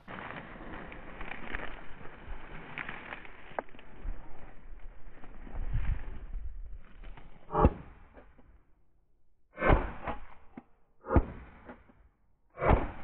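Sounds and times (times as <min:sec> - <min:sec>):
straw rustling: 0:00.0 - 0:07.6
footsteps crunching through stubble: 0:00.0 - 0:08.4.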